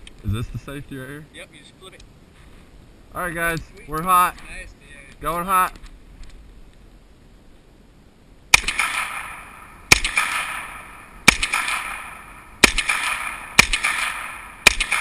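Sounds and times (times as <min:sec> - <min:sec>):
gunshots with echo: 0:08.5 - 0:15.0.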